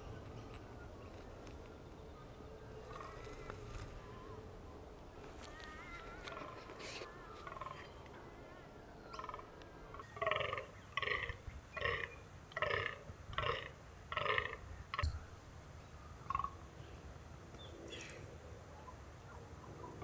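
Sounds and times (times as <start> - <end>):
faint birdsong: 0.0 - 20.0
deer croaking: 9.2 - 15.0.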